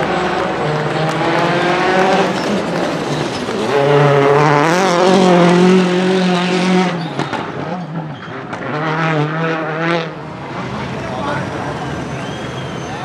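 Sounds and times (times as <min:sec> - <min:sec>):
exhaust cracks: 0:00.0 - 0:05.6
rally car engine revving: 0:00.0 - 0:13.0.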